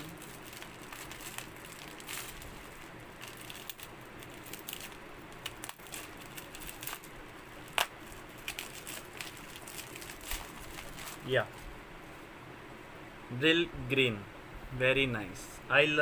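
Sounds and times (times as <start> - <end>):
bubble wrap crinkling: 0.0 - 11.6.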